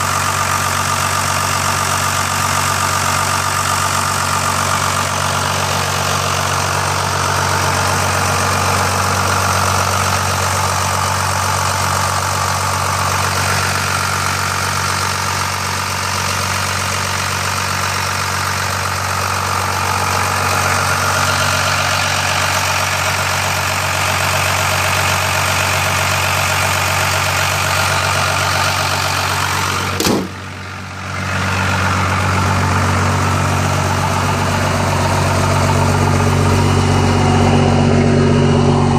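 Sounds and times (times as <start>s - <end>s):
diesel engine idling: 0.0s - 38.9s
sharp click: 30.0s - 30.3s.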